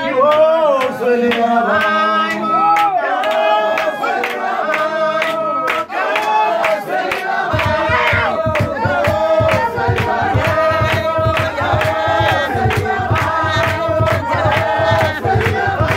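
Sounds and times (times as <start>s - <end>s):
group singing a chant-like song: 0.0s - 15.9s
rhythmic hand-claps: 0.0s - 15.9s
low beat: 7.5s - 15.9s.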